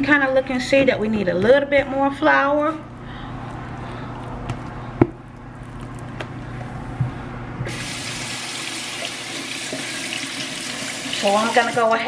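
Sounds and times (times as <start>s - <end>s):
kitchen tap running: 7.7s - 12.0s.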